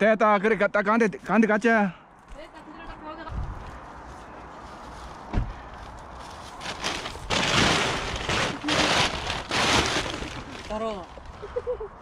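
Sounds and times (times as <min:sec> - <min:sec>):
plastic film rustling and scraping: 0:04.1 - 0:11.6.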